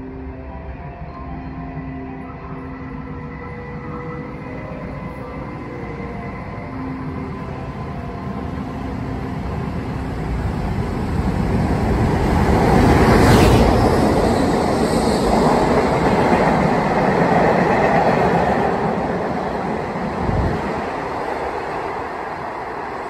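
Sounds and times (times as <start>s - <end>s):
train wheels rumbling on rail: 9.5s - 23.0s.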